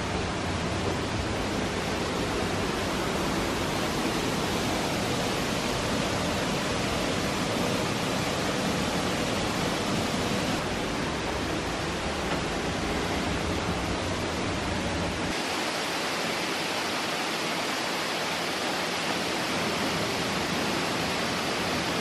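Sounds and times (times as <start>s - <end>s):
waterfalls rushing over rocks: 0.0s - 22.0s.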